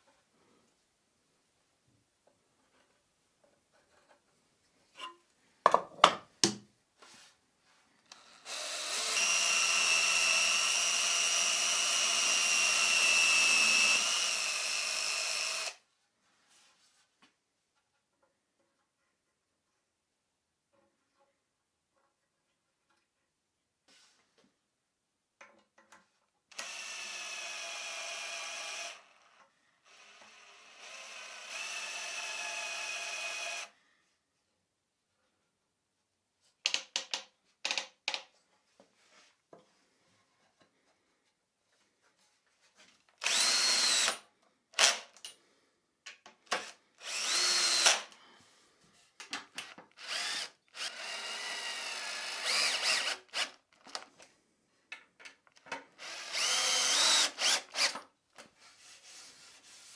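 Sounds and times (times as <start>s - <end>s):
drill driving screws into wood: 8.1s - 15.8s, 26.5s - 33.7s, 43.2s - 44.2s, 44.8s - 45.3s, 46.5s - 48.2s, 49.6s - 54.1s, 56.0s - 58.1s.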